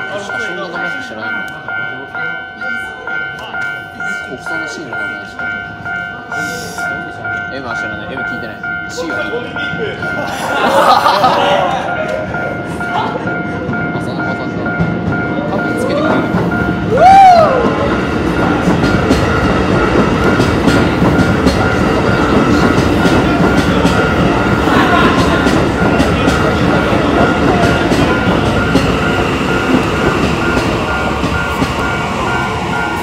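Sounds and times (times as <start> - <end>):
crossing warning bell: 0.0 - 33.0
train wheels clicking over rail joints: 16.1 - 33.0.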